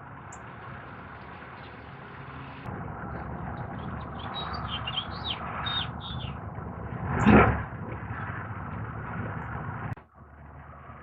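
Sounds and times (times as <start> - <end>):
low background rumble: 0.0 - 11.0
songbird chirping: 3.8 - 6.4.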